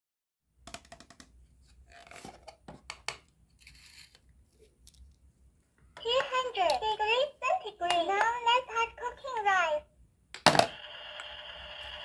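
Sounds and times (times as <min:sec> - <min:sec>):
plastic toy pan knocking: 0:00.6 - 0:01.3.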